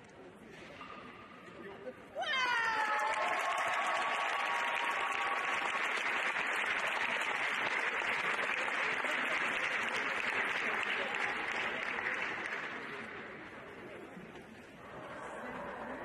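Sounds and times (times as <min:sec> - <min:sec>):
audience applauding: 0:02.5 - 0:13.1.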